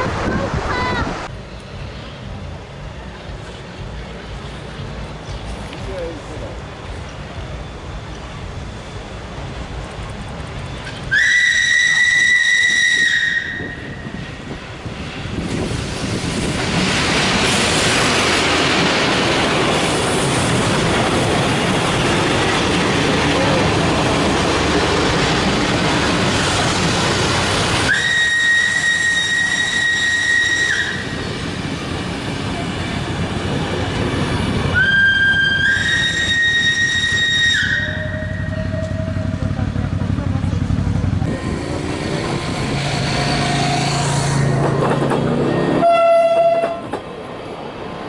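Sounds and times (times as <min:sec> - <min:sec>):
train wheels rushing on track: 0:00.0 - 0:48.0
steam locomotive whistle: 0:10.9 - 0:14.0, 0:27.9 - 0:31.2, 0:34.7 - 0:39.4, 0:45.4 - 0:47.0.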